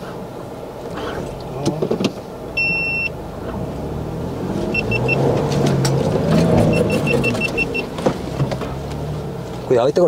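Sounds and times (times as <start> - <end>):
engine pulling at low speed: 0.0 - 10.0
short quick beeps: 2.6 - 3.1, 4.7 - 5.2, 6.7 - 7.9
electronic tone: 4.7 - 5.2, 6.7 - 7.9.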